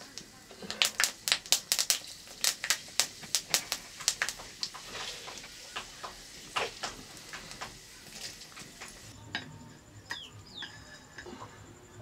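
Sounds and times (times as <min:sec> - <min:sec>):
firewood crackling and popping: 0:00.0 - 0:09.2.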